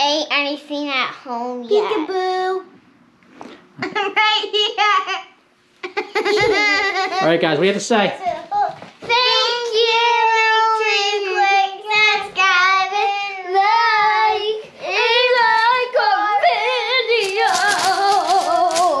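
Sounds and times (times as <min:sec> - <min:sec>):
child singing in a high voice: 0:08.4 - 0:19.0.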